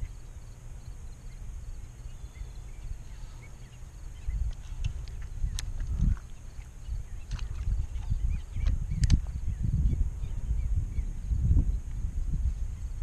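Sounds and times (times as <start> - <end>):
wind buffeting microphone: 3.9 - 13.0
faint ticks: 4.4 - 7.7.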